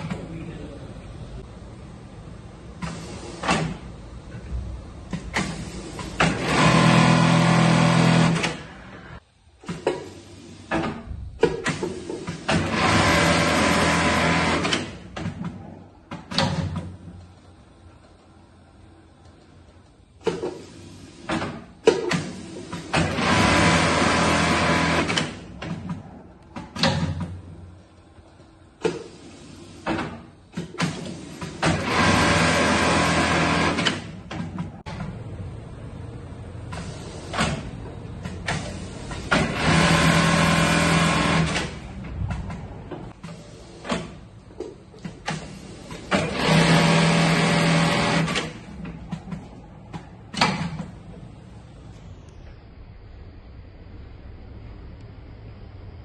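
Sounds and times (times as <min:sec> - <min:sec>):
sewing machines stitching: 0:05.2 - 0:08.9, 0:11.6 - 0:15.4, 0:20.2 - 0:26.0, 0:28.8 - 0:34.7, 0:36.7 - 0:42.1, 0:45.0 - 0:48.9.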